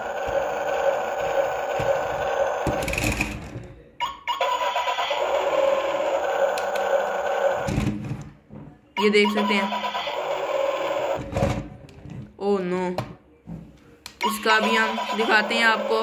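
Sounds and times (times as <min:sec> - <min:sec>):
toy car engine sound effect: 0:04.0 - 0:07.7, 0:09.0 - 0:11.3, 0:14.2 - 0:16.0.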